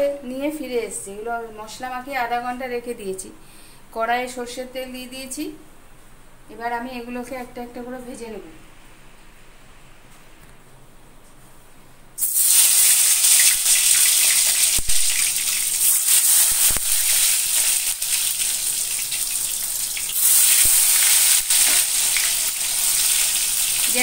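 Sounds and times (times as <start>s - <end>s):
deep-fry oil sizzle: 12.2s - 24.0s
oil crackles: 12.2s - 24.0s.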